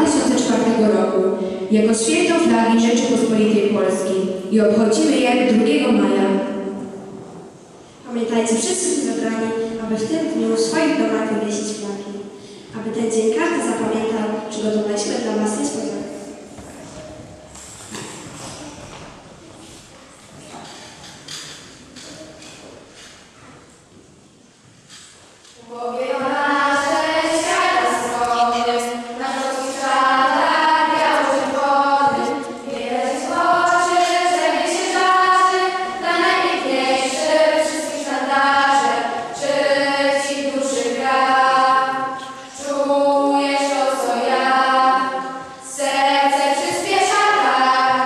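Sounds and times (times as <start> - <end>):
girls choir singing: 0.0 - 16.6, 25.6 - 48.0.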